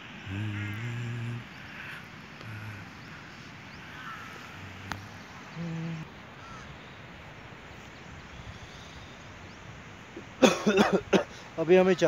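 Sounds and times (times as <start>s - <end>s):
open-air hiss: 0.0s - 12.0s.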